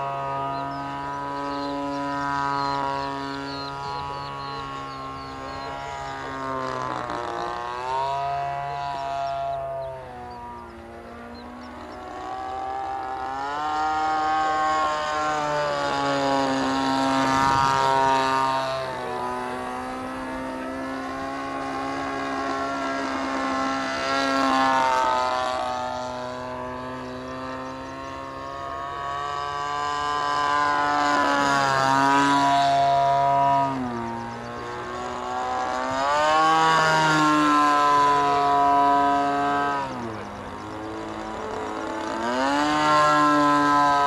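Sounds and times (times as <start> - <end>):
model plane engine in flight: 0.0 - 44.0.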